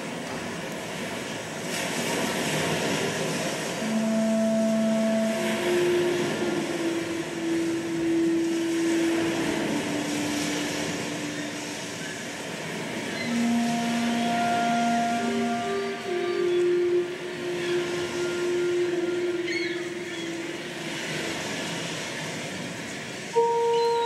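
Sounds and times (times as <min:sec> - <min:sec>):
rushing wind-like noise: 0:00.0 - 0:23.4
slow held low notes: 0:03.8 - 0:21.6.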